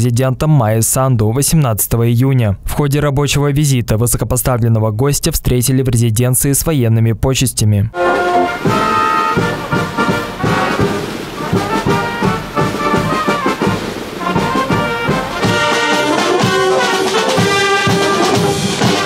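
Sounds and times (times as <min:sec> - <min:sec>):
brass band playing: 0:08.0 - 0:19.0.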